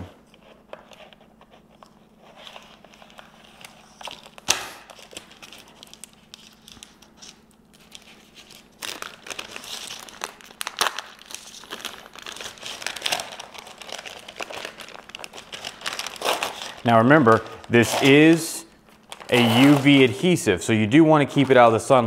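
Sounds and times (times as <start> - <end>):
foil crinkling: 2.2 - 20.4
scissors cutting foil pouch: 8.7 - 18.4, 19.2 - 20.1.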